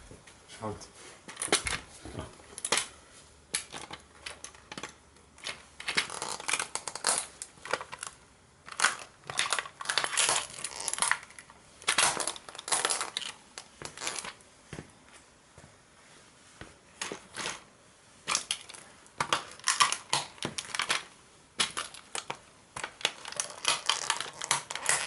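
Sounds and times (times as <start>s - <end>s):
toy car crunching underfoot: 3.6s - 14.4s, 18.3s - 25.0s.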